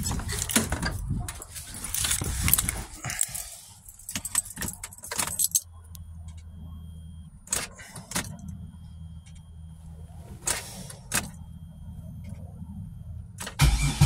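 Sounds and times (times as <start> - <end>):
car keys jangling: 0.0 - 6.4
low steady hum: 0.0 - 14.0.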